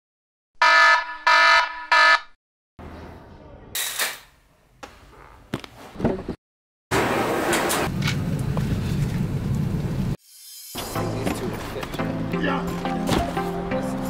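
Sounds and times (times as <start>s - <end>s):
smartphone alarm ringing: 0.6s - 2.3s.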